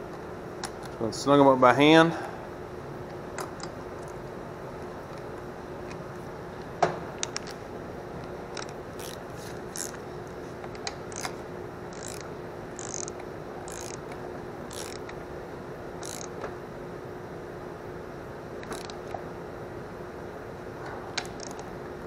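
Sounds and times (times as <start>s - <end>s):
faint steady hum: 0.0s - 22.0s
ratchet wrench clicking: 8.5s - 10.0s, 11.1s - 15.2s, 16.0s - 16.4s, 18.6s - 19.1s, 21.2s - 21.6s.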